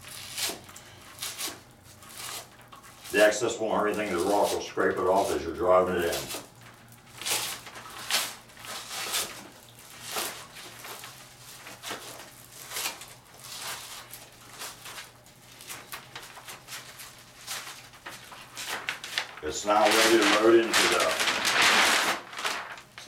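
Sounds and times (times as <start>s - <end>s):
rustling and crackling: 1.2s - 23.0s.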